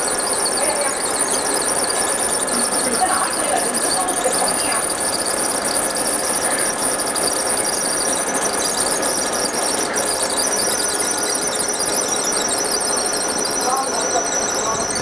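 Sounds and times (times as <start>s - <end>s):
laser machine high-pitched squeal: 0.0s - 15.0s.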